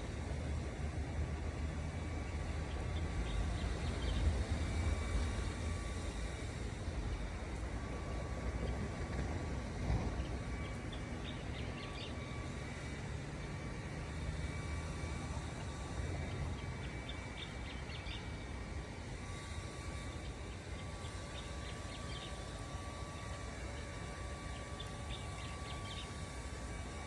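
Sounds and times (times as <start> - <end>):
faint steady whine: 0.0 - 27.0.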